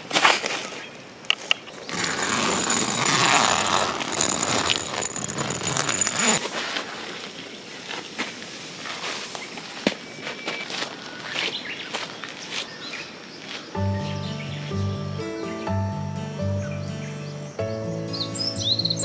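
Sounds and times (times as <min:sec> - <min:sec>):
tent zipper pulled open: 0:01.9 - 0:06.7
tent fabric rustling: 0:01.9 - 0:09.8.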